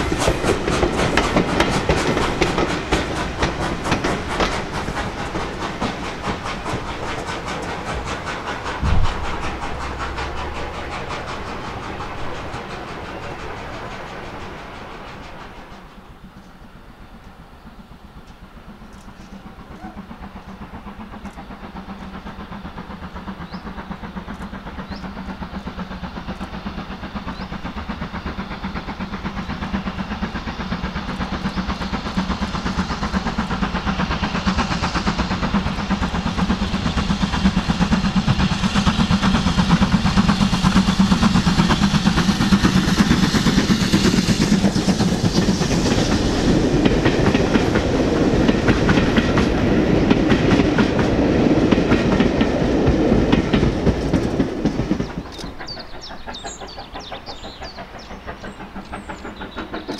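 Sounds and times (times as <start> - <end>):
steam locomotive exhaust beat: 0.0 - 59.9.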